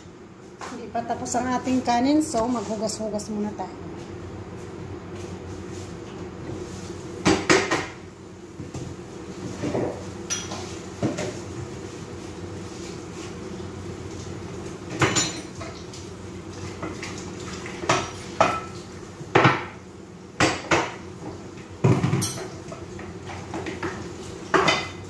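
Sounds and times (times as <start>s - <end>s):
dishes clanking in a sink: 9.5s - 11.4s, 14.9s - 15.9s, 21.8s - 25.0s.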